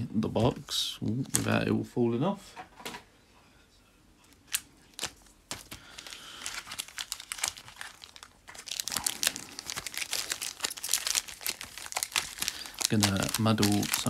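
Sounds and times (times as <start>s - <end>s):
foil wrappers crinkling: 4.5s - 14.0s.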